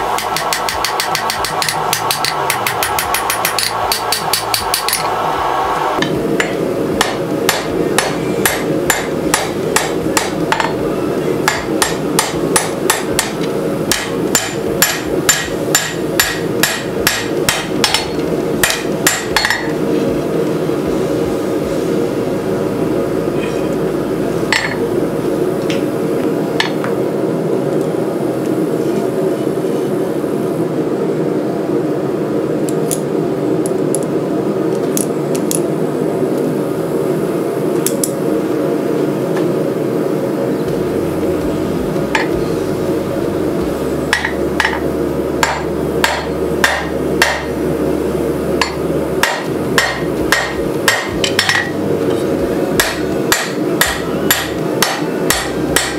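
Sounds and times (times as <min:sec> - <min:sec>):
steady background roar: 0:00.0 - 0:55.9
hammer striking steel on anvil: 0:00.1 - 0:05.1, 0:06.0 - 0:10.8, 0:11.4 - 0:19.8, 0:24.5 - 0:24.8, 0:44.1 - 0:44.8, 0:45.4 - 0:47.6, 0:48.6 - 0:51.8, 0:52.8 - 0:55.9.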